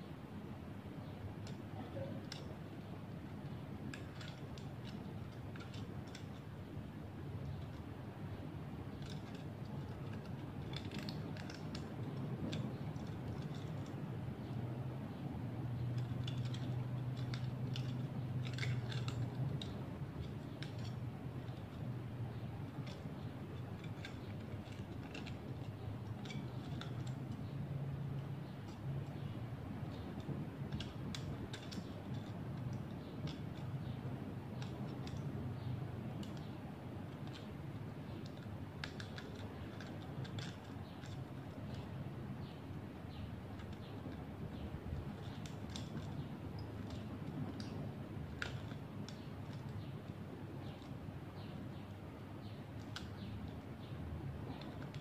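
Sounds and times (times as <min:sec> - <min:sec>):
steady low hum: 0:00.0 - 0:55.0
thin metal clicking as bent: 0:01.4 - 0:02.6, 0:03.5 - 0:06.5, 0:08.9 - 0:14.6, 0:15.8 - 0:51.8, 0:52.4 - 0:55.0.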